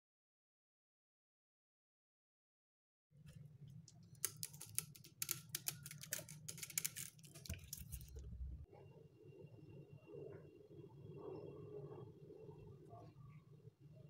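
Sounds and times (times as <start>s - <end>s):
low steady hum: 3.3s - 14.0s.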